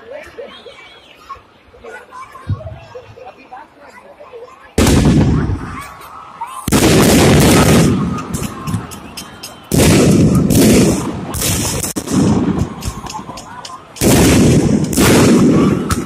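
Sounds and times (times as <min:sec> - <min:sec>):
fireworks bangs: 0:04.8 - 0:06.0, 0:06.6 - 0:16.0
fireworks crackling: 0:04.8 - 0:16.0.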